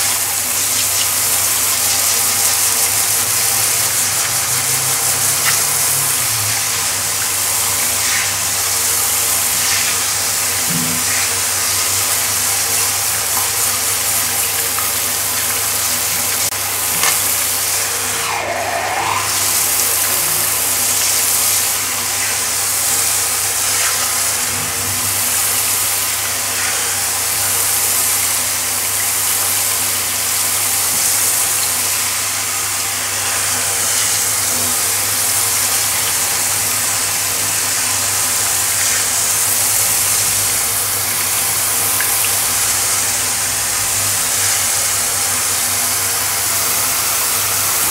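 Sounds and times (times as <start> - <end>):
shower spraying water on tiles: 0.0 - 47.9.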